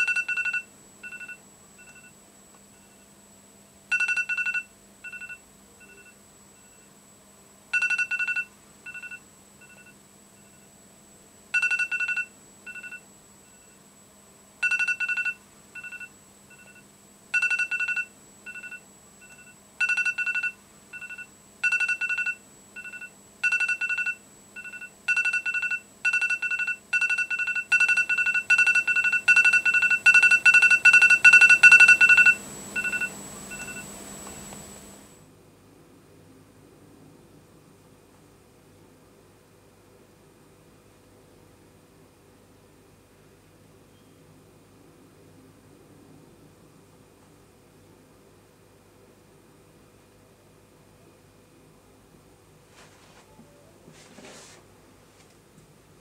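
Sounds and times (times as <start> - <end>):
electronic beeping: 17.4 - 34.5.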